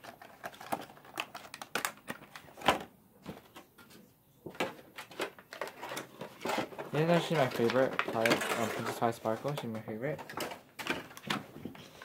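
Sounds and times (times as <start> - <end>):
plastic packaging crinkling: 0.0 - 2.6, 4.9 - 11.4.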